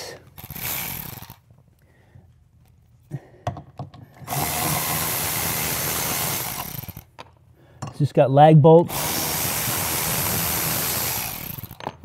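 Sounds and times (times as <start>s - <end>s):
cordless drill running: 0.4s - 1.4s, 4.3s - 7.0s, 8.9s - 11.8s.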